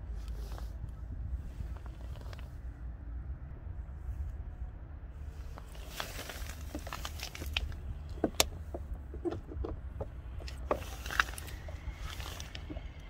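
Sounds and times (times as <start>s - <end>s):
plastic clicks and scraping: 5.6s - 13.0s.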